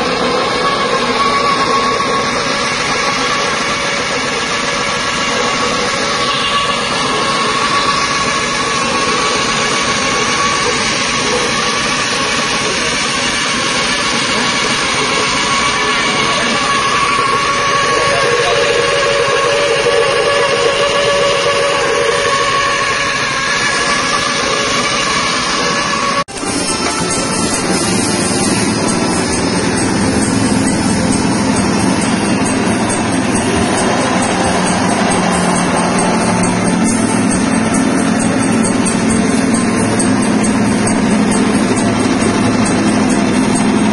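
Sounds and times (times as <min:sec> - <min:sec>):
dehulling machine running: 0:00.0 - 0:43.9
machine whine: 0:00.0 - 0:43.9
small petrol engine running: 0:26.6 - 0:43.9.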